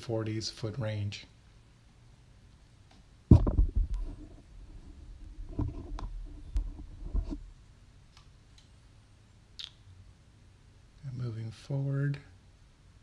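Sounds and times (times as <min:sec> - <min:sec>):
camera handling rumbles and knocks: 0:03.3 - 0:04.5, 0:05.2 - 0:07.4.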